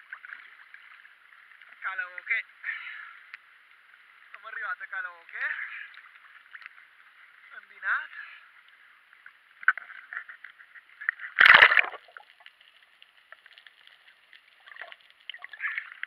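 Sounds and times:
water lapping and sloshing: 0.0s - 16.0s
loud splash: 11.4s - 12.1s.

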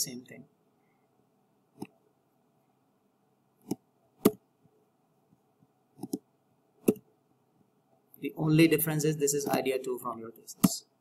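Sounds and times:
mouse and keyboard clicks: 1.8s - 2.0s, 3.6s - 4.4s, 6.0s - 6.2s, 6.8s - 7.0s, 10.6s - 10.8s.

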